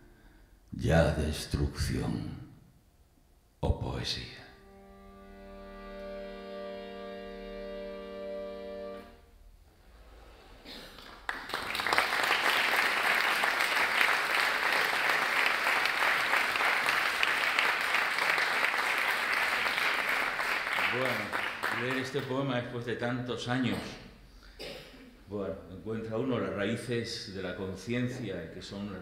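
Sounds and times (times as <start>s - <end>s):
accordion holding a chord: 4.5s - 9.5s
audience applause: 10.9s - 22.4s.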